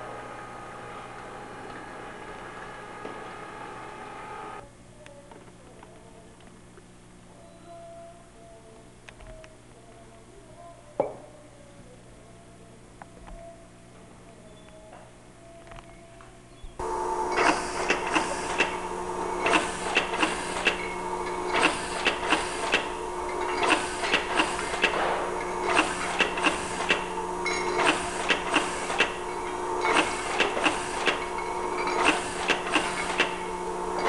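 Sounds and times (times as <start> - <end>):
filling machine humming: 0.0 - 4.6, 16.8 - 34.0
sharp mechanical clicking bursts: 17.2 - 34.0.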